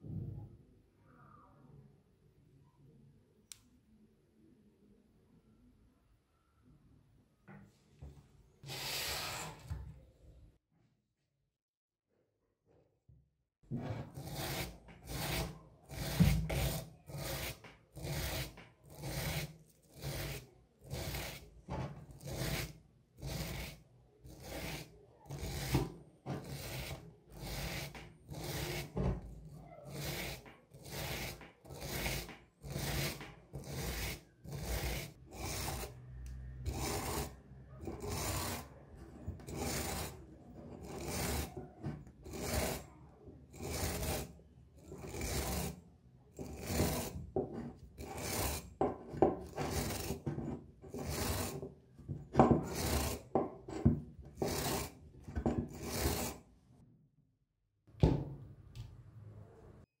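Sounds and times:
wire brush scrubbing brass: 14.0 - 29.1, 29.8 - 36.0, 36.7 - 42.9, 43.5 - 45.8, 46.4 - 56.4.

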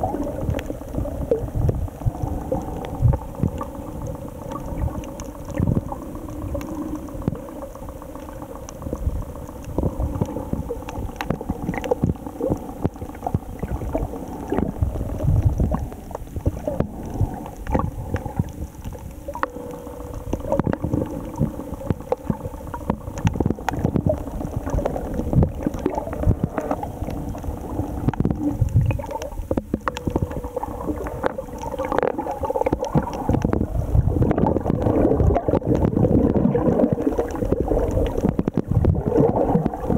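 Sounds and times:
steady low hum: 0.0 - 39.9
underwater gurgling and sloshing: 0.0 - 39.9
bubble clicks: 9.7 - 39.9.

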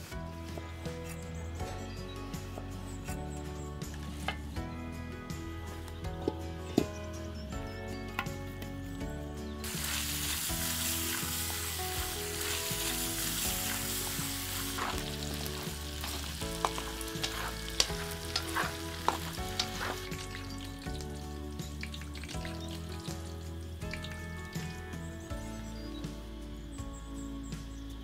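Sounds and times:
pork fat sizzling in wok: 9.6 - 25.3.

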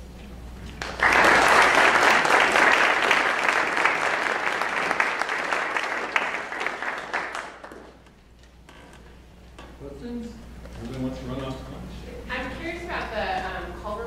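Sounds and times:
audience applause: 0.8 - 8.1.

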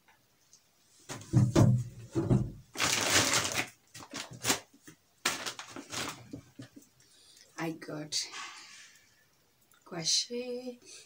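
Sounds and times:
plastic bag rustling: 2.1 - 6.8.

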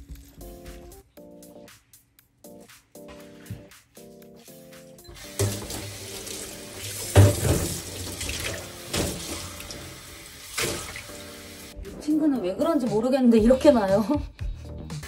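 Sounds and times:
faucet running into plastic cup: 5.1 - 11.2
water splashing into metal sink: 5.1 - 11.7.

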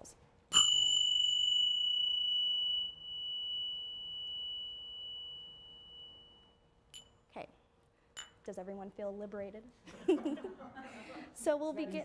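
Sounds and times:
hand cymbals ringing: 0.5 - 7.3.

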